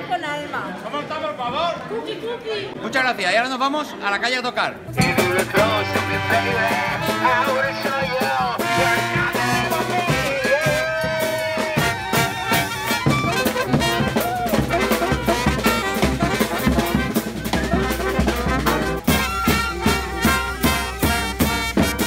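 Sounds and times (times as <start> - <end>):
drum and cymbal beat: 4.9 - 22.0
saxophone and brass: 4.9 - 22.0.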